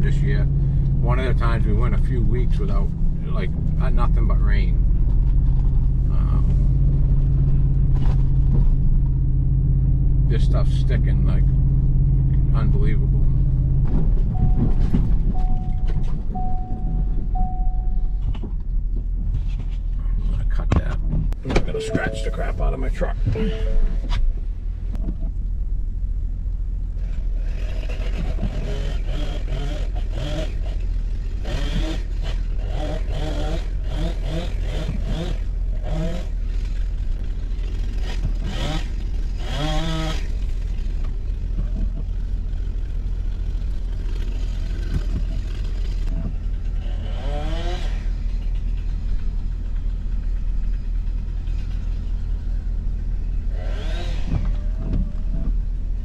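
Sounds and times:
low rumble: 0.0s - 27.5s
engine revving: 27.0s - 41.2s, 42.6s - 50.8s, 53.3s - 55.5s.

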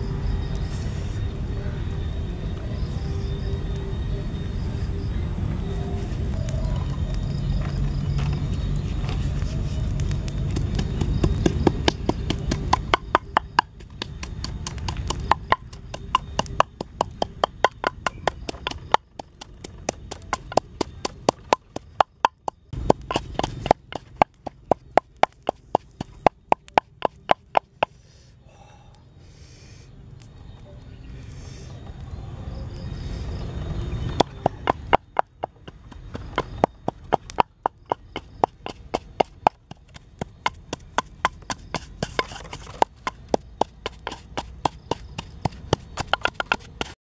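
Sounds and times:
wooden pestle pounding in mortar: 10.5s - 27.9s, 34.2s - 47.0s.

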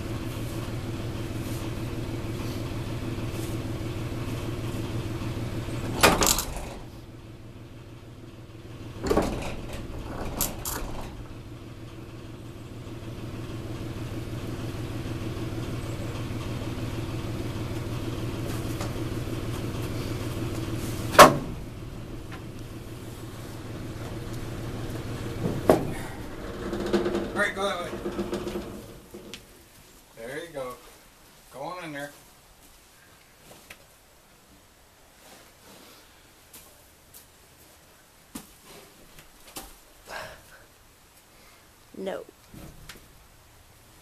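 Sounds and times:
engine idling: 0.0s - 29.6s.

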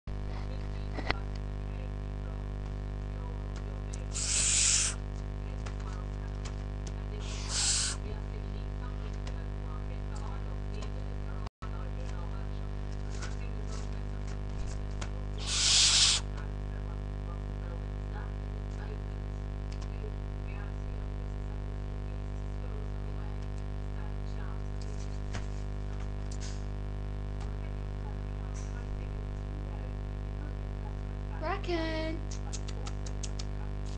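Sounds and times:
steady low hum: 0.1s - 33.9s
owl chick hissing screeches: 4.1s - 5.0s, 7.2s - 8.0s, 15.4s - 16.3s.

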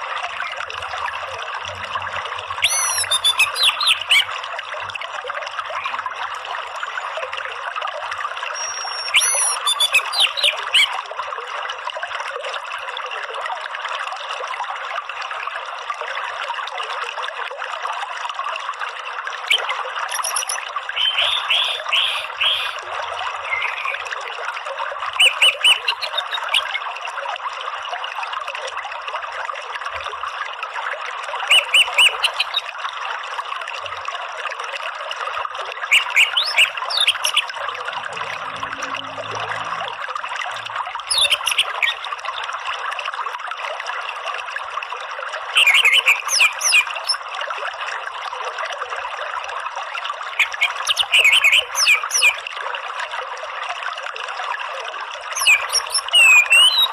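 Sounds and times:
stream running water: 0.0s - 56.9s
thrush chattering calls: 2.6s - 4.3s, 8.6s - 10.9s, 20.1s - 22.8s, 41.1s - 42.0s.

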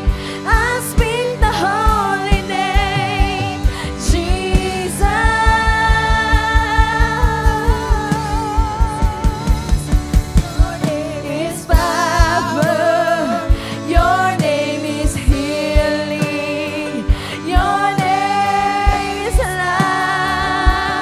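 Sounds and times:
person singing with vibrato: 0.0s - 21.0s
steady drum beat: 0.0s - 21.0s.

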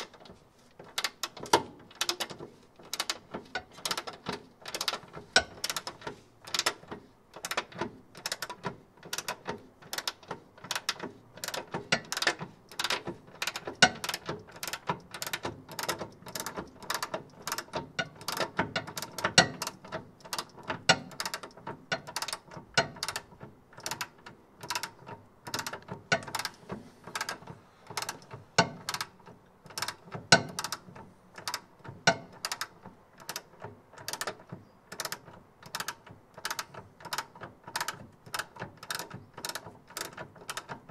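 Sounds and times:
socket ratchet clicking: 7.4s - 40.8s.

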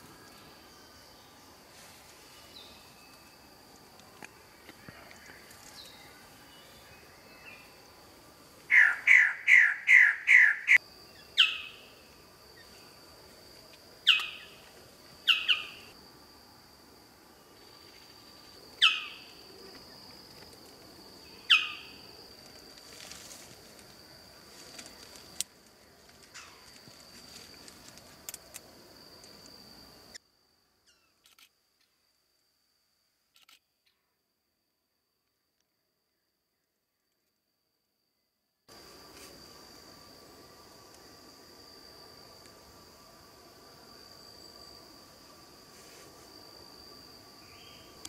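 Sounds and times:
faint high whine: 0.0s - 8.7s.

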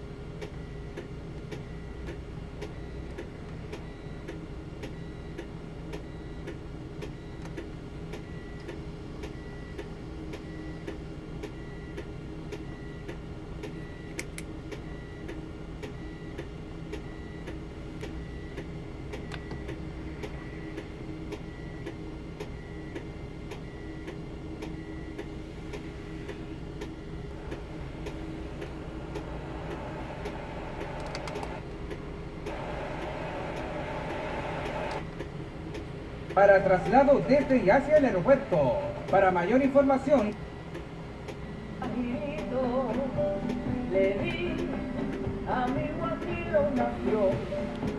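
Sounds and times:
steady ticking: 14.7s - 33.8s
low hum: 17.0s - 39.4s
radio static hiss: 32.5s - 35.0s.

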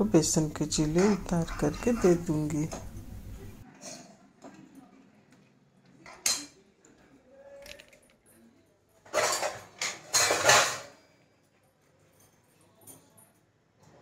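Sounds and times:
kitchen utensils clinking and scraping: 0.0s - 4.2s, 9.0s - 11.1s.

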